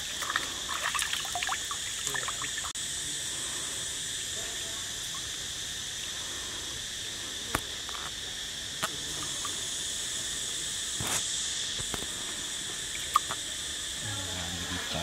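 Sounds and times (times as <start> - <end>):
water splashing and dripping: 0.0 - 2.8
insects droning: 0.0 - 15.0.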